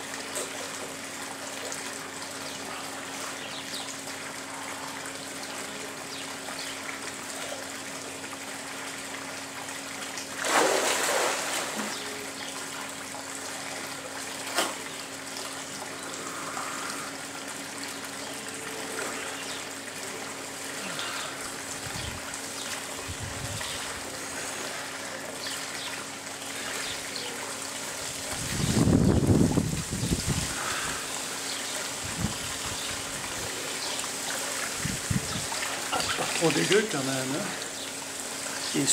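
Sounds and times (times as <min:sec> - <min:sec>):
pool water lapping: 0:00.0 - 0:38.9
swimmer splashing: 0:09.7 - 0:23.0, 0:30.2 - 0:38.9.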